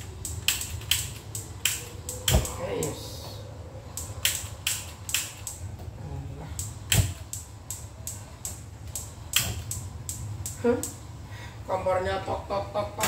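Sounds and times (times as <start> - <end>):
gas stove ignition clicks: 0.2 - 2.5, 6.6 - 11.0.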